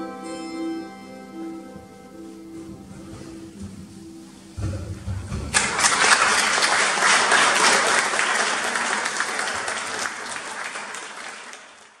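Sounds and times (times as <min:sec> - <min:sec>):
audience applauding: 0:05.5 - 0:12.0.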